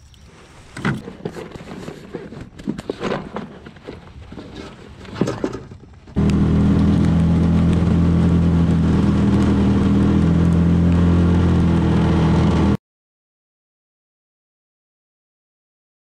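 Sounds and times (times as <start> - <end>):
outboard engine running: 6.2 - 12.8.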